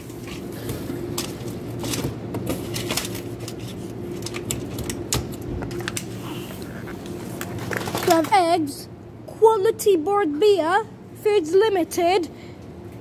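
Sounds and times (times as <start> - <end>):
low hum of shop machinery: 0.0 - 13.0.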